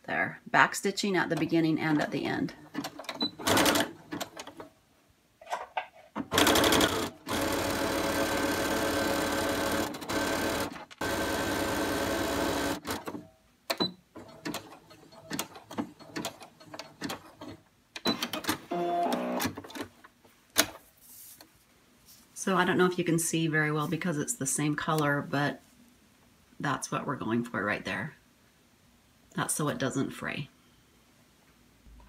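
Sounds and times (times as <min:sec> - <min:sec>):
sewing machine stitching: 0:02.7 - 0:04.6, 0:06.3 - 0:13.2.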